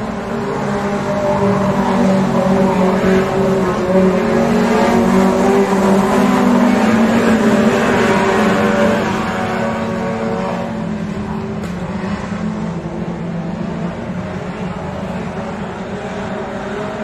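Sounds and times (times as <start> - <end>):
racing car engines running hard: 0.0 - 17.0.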